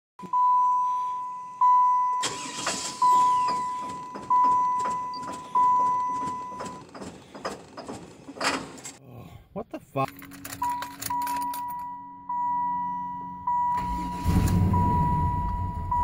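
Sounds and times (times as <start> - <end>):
dashboard warning chime: 0.2 - 6.9, 10.5 - 16.0
starter cranking engine: 2.2 - 8.9.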